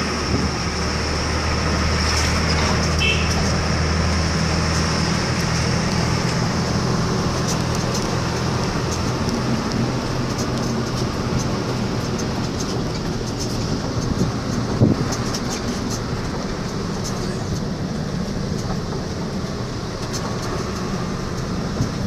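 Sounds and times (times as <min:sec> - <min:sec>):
low engine hum: 0:00.0 - 0:22.0
tyre and wind noise: 0:00.0 - 0:22.0
light clicking rattles: 0:04.6 - 0:22.0.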